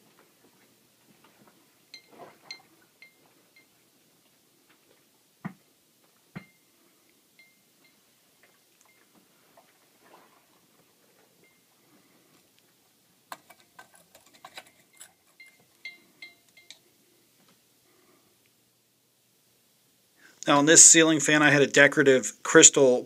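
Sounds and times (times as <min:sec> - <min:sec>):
faint clicks and clinks: 0:01.9 - 0:03.7, 0:07.4 - 0:09.2, 0:13.3 - 0:16.9.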